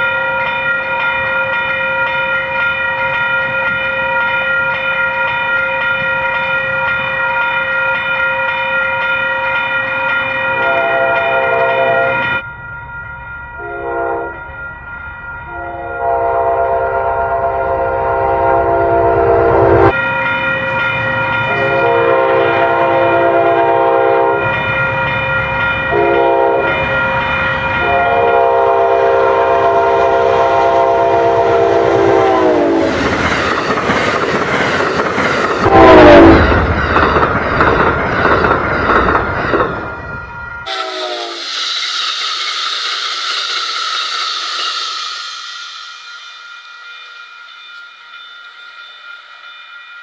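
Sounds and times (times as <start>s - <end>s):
train cars rumbling and clattering: 0.0s - 49.6s
crossing bell ringing: 0.0s - 50.0s
locomotive horn blasts: 10.6s - 12.4s, 13.6s - 14.4s, 15.5s - 19.9s, 21.5s - 24.5s, 25.9s - 26.8s, 27.8s - 33.0s, 35.6s - 36.6s, 40.7s - 41.5s.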